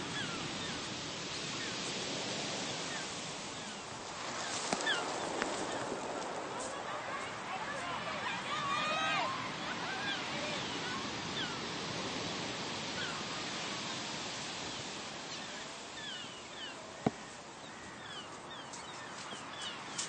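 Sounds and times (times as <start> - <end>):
heavy surf breaking: 0.0 - 17.8.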